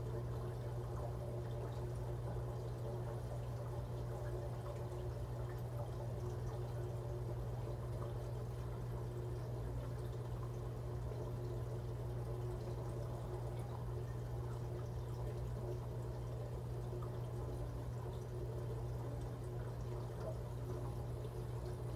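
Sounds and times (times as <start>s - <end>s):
steady low hum: 0.0s - 21.9s
water trickling and pouring: 0.0s - 21.9s.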